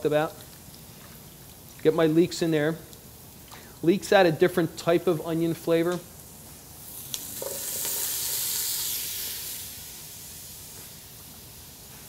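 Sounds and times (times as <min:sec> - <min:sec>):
vegetables sizzling in a pan: 0:06.0 - 0:12.0.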